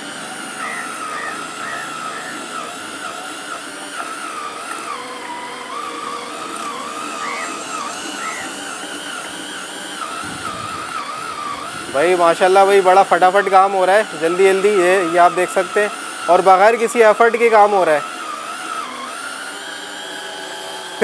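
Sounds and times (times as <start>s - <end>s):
cordless drill motor whine: 0.0s - 21.0s
meat being minced: 0.0s - 21.0s.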